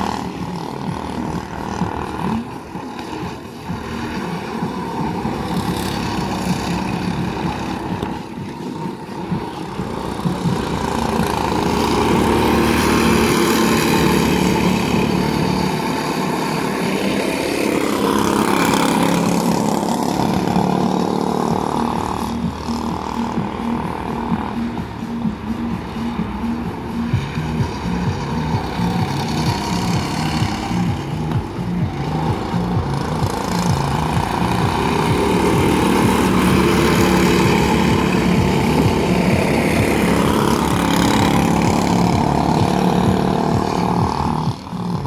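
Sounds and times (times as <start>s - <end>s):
go-kart engines running: 0.0s - 45.0s.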